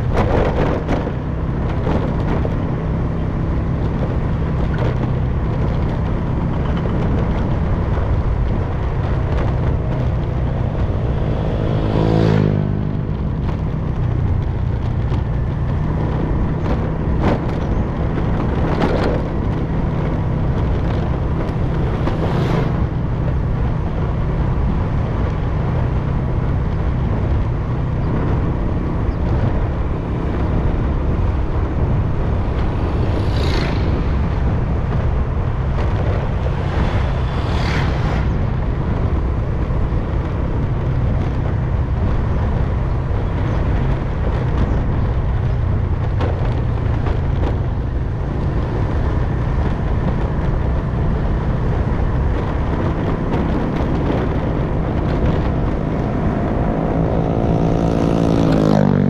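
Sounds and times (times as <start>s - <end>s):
motorcycle engine running: 0.0s - 59.0s
wind and road noise: 0.0s - 59.0s.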